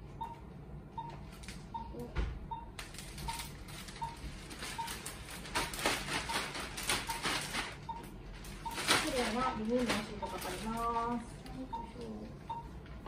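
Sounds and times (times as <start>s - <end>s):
patient monitor beeping: 0.0s - 13.0s
plastic sheet crinkling: 2.8s - 12.2s.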